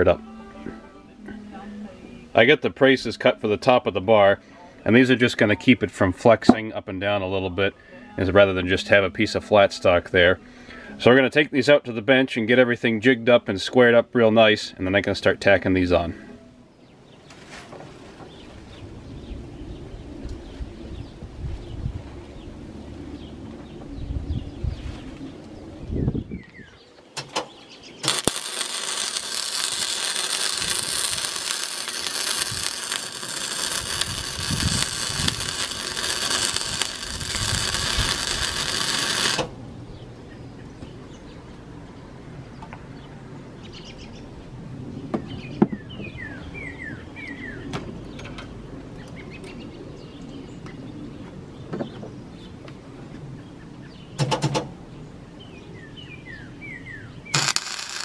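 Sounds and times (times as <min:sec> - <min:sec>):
small birds chirping: 0:18.2 - 0:54.2
short tack weld: 0:28.0 - 0:39.5, 0:57.3 - 0:58.0
welder arc buzzing: 0:28.0 - 0:39.6, 0:57.3 - 0:58.0.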